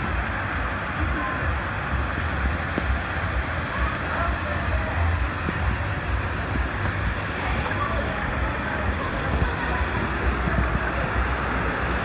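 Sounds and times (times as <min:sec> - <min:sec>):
faint voices: 0:00.0 - 0:12.0
water rushing: 0:00.0 - 0:12.0
wind buffeting microphone: 0:04.7 - 0:12.0.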